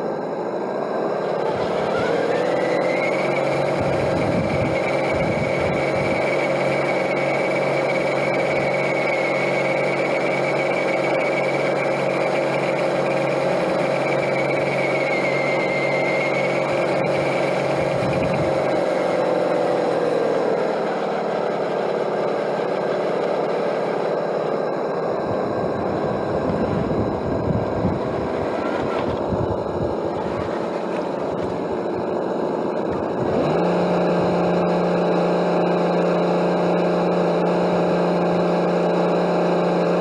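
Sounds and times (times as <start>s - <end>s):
electric motor and gearbox whine: 0.0s - 40.0s.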